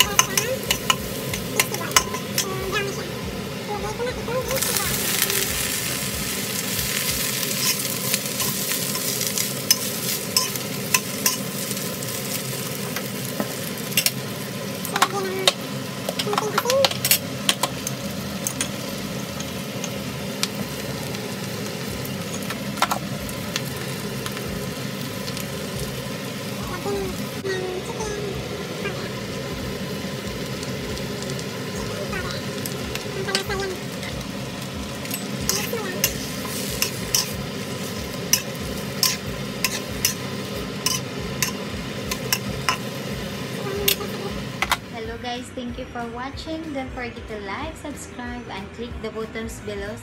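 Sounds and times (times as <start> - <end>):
greens sizzling in a wok: 0.0 - 45.8
spatula clicking and scraping: 7.0 - 11.7, 35.0 - 37.5, 38.2 - 42.9
utensil clicking against pan: 38.3 - 42.9.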